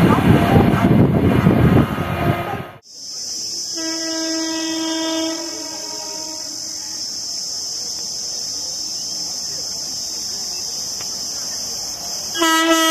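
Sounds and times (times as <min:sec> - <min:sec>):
insects buzzing: 0:02.8 - 0:12.9
train horn: 0:03.7 - 0:07.0, 0:12.4 - 0:12.9.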